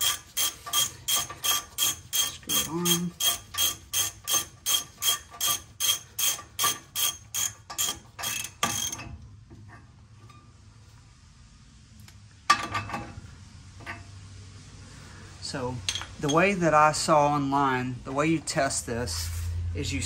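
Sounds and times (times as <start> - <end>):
ratchet wrench clicking: 0.0 - 9.0.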